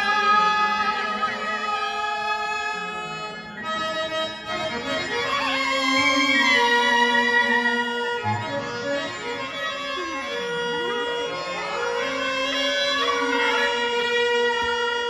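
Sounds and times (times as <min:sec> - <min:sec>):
harmonium melody: 0:00.0 - 0:15.0.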